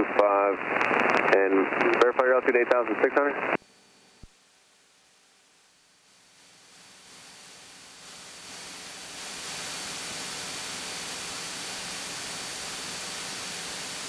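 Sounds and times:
light aircraft cockpit hiss: 4.2 - 14.0.

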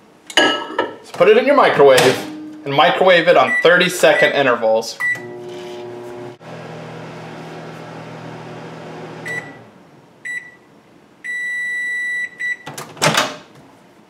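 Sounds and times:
microwave beeps: 3.5 - 4.4, 5.0 - 5.5, 9.2 - 12.7
microwave oven humming: 5.0 - 9.8.

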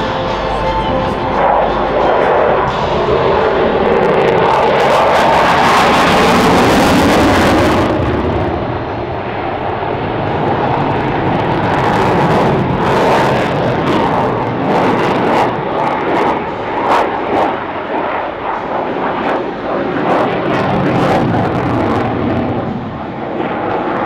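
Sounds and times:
fighter jet rushing noise: 0.0 - 24.0.

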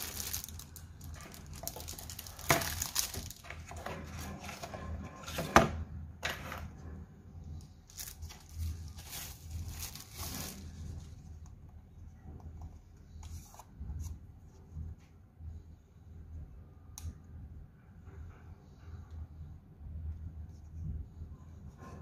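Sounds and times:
plastic wrapping crinkling: 0.0 - 3.8, 7.8 - 11.3.

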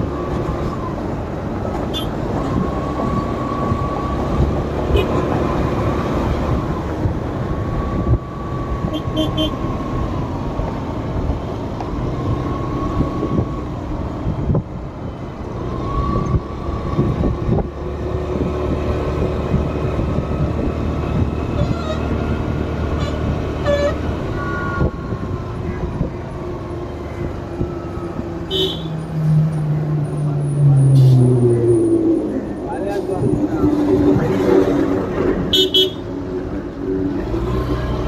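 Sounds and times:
vehicle engine and road rumble: 0.0 - 38.0
car horn toots: 8.9 - 9.6, 23.0 - 25.0, 28.5 - 28.9, 35.5 - 36.0.

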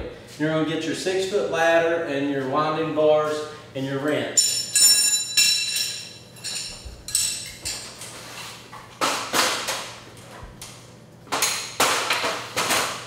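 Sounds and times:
metal bars clinking: 4.4 - 8.0.

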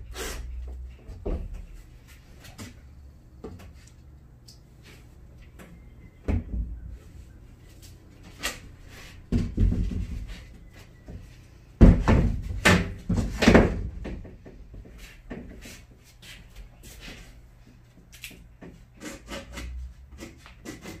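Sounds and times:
wooden panel knocks and thumps: 9.3 - 10.4, 11.8 - 14.6.

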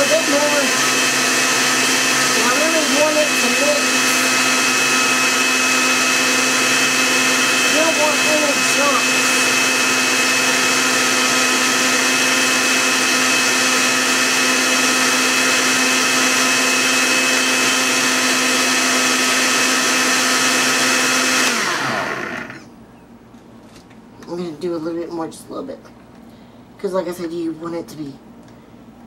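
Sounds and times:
blender motor whining: 0.0 - 22.7.

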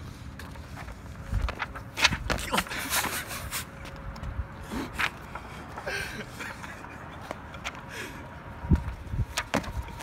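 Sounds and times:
person laughing: 2.3 - 3.8, 5.8 - 8.0.

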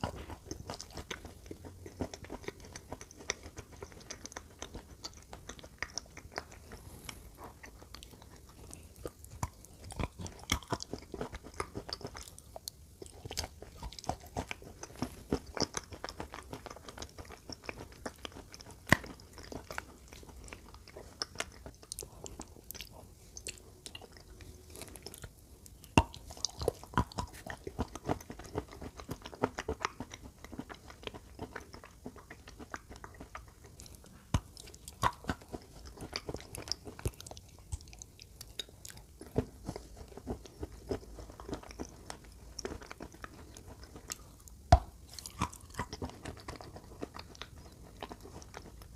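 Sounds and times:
chewing and crunching chalk: 0.0 - 48.9.

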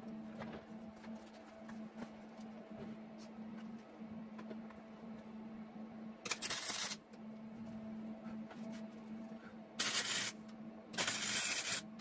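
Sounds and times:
steady low hum: 0.0 - 12.0
welder arc sizzling: 6.2 - 7.0, 9.8 - 12.0.

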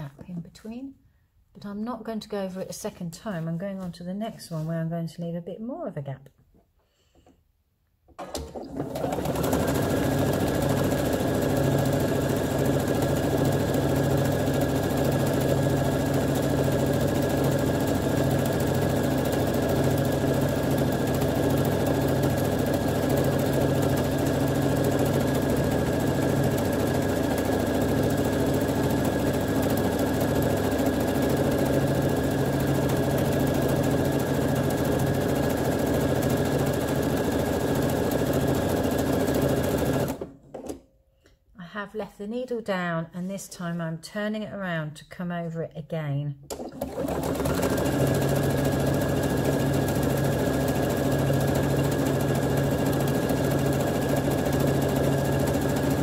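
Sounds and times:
electric sewing machine stitching: 8.2 - 40.8, 46.5 - 56.0.

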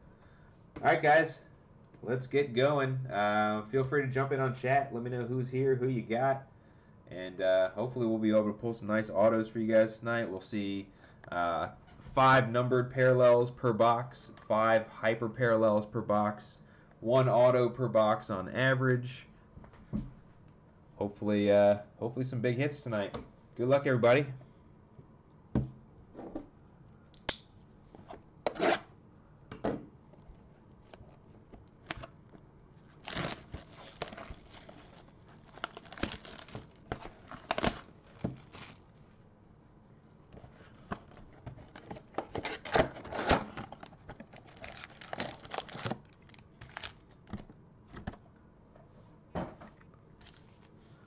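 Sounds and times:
tearing and crinkling of wrapper: 32.9 - 39.1, 43.6 - 47.3.

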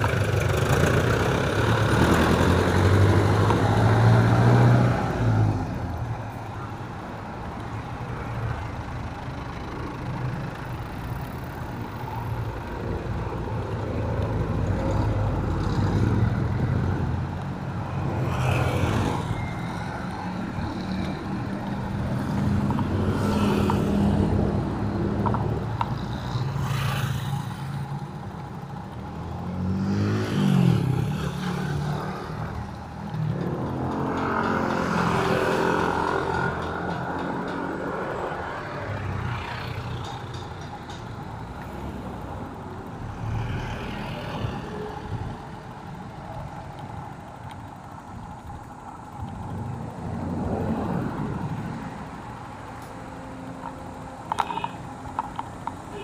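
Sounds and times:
vehicle passing by: 0.0 - 6.2, 28.6 - 40.1
traffic rumble: 0.0 - 56.0.

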